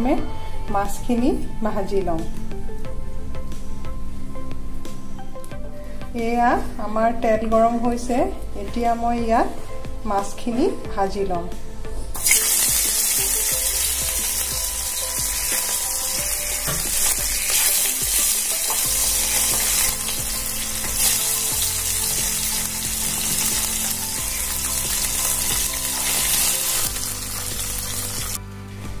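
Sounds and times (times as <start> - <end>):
fish frying in sizzling oil: 12.2 - 28.4.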